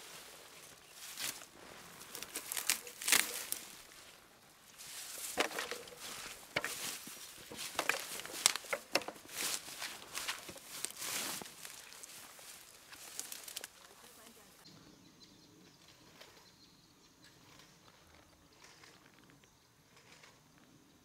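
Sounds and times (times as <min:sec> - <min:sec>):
footsteps through tall grass: 0:00.0 - 0:14.6.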